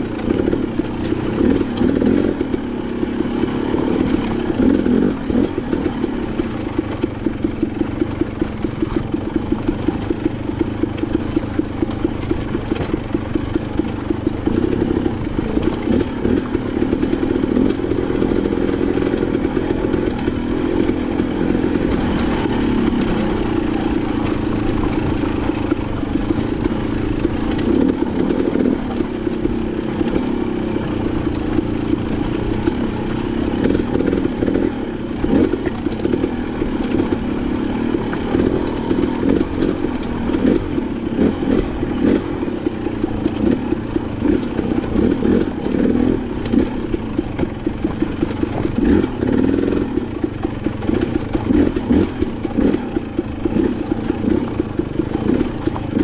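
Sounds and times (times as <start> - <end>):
dirt bike engine running: 0.0 - 56.0.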